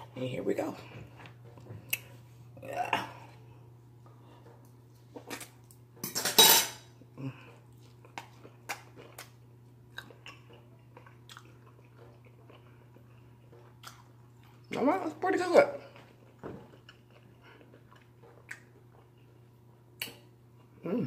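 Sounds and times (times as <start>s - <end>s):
crunchy food being chewed: 7.4s - 14.8s, 15.8s - 20.8s.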